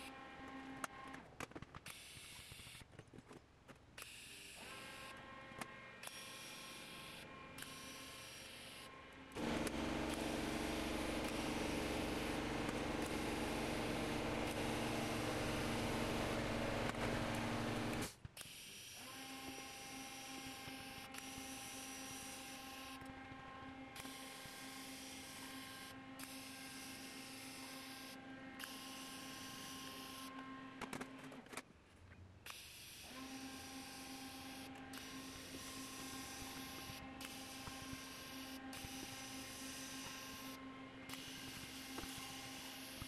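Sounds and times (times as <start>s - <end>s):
clicks: 9.4s - 18.1s
welding arc hissing and buzzing: 9.4s - 18.1s.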